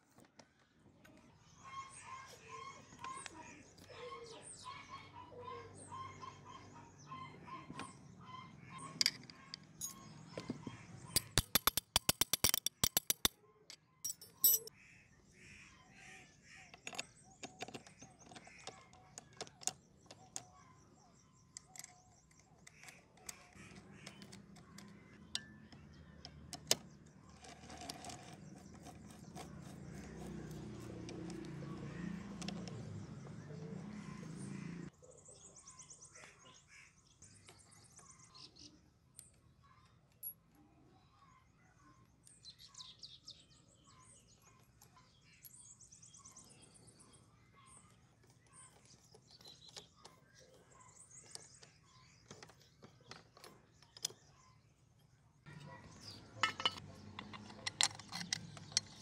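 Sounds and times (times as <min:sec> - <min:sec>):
birds calling: 0:00.2 - 0:59.0
metal engine parts clicking: 0:09.0 - 0:10.1, 0:11.2 - 0:14.7, 0:21.5 - 0:33.0, 0:55.6 - 0:59.0
sharp metallic clicks: 0:11.2 - 0:13.4.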